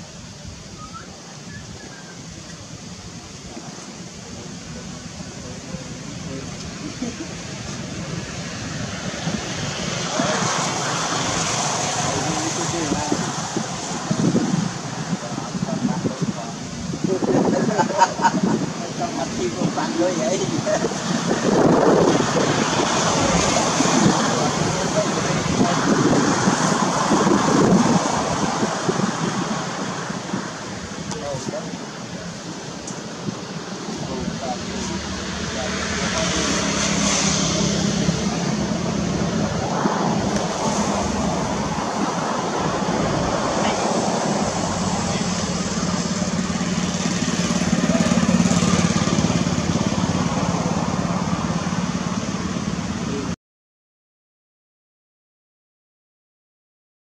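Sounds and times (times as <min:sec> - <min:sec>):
wind buffeting microphone: 0:00.0 - 0:53.3
small engine running: 0:45.2 - 0:50.4.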